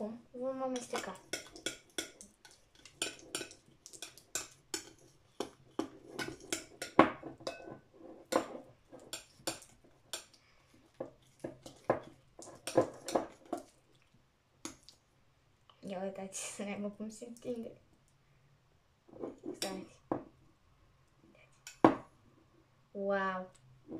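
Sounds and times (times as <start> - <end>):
spoon clinking against ceramic bowl: 0.8 - 10.4.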